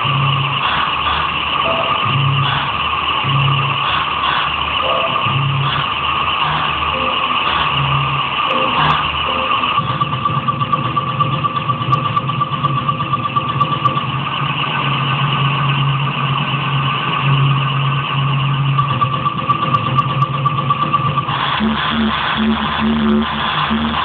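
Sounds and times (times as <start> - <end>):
electronic drone: 0.0 - 24.0
pulsing higher tone: 0.0 - 24.0.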